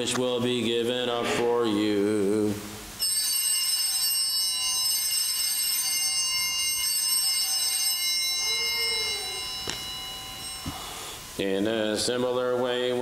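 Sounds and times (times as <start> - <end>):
altar bells ringing: 3.0 - 12.4.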